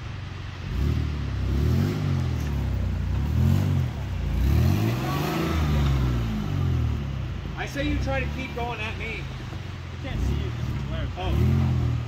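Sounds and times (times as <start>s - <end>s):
vehicle engine revving: 0.0s - 12.0s.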